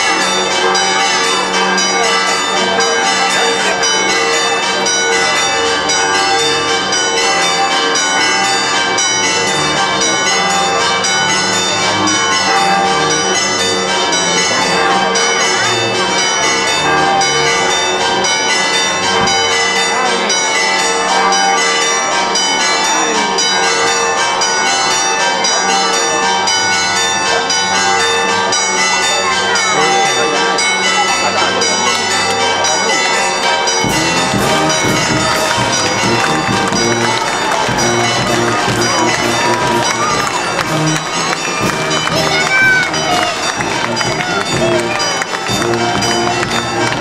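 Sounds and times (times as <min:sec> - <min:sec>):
church bells pealing: 0:00.0 - 0:47.0.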